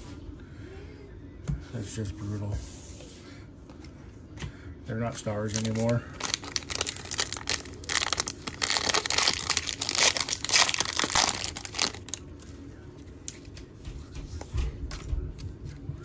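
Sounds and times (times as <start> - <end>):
wrapper crinkling and tearing: 5.4 - 12.2.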